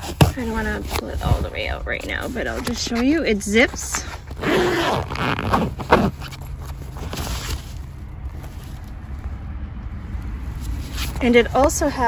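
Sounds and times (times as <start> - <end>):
zipper pulled open: 0.0 - 9.0
fabric rustling and scraping: 0.0 - 12.0.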